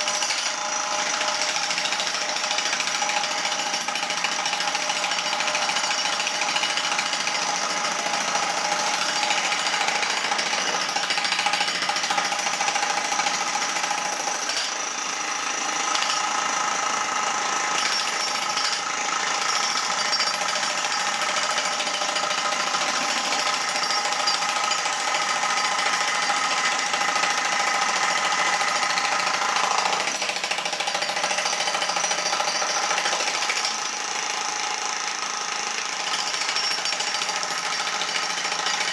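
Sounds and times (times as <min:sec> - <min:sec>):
demolition breakers hammering concrete: 0:00.0 - 0:14.9, 0:15.8 - 0:16.4, 0:17.5 - 0:38.9.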